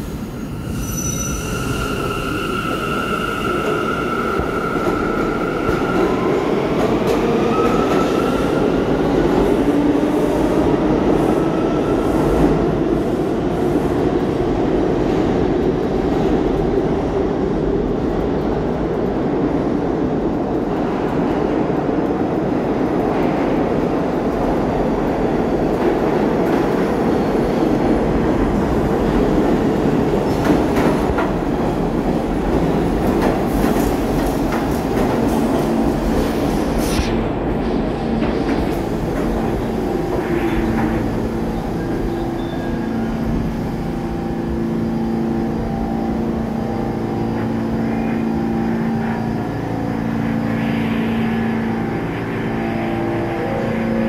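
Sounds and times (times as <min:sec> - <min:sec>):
subway train wheels rumbling: 0:00.0 - 0:54.0
high wheel squeal: 0:00.5 - 0:06.2.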